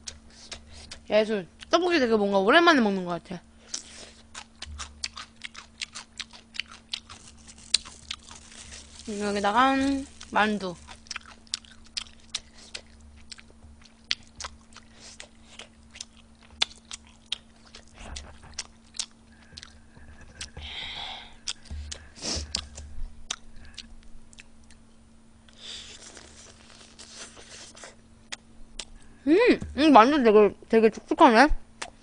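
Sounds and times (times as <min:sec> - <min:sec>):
wet mouth clicks while chewing: 0:21.4 - 0:24.8.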